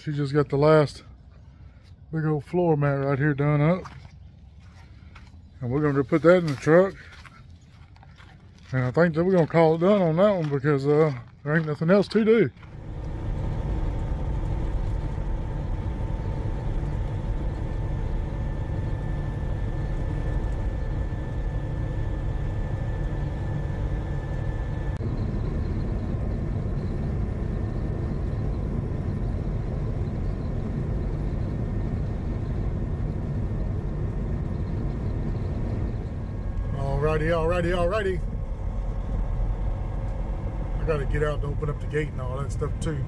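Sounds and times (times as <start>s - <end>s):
truck engine and tyre rumble: 0.0s - 43.0s
faint high whine: 12.5s - 43.0s.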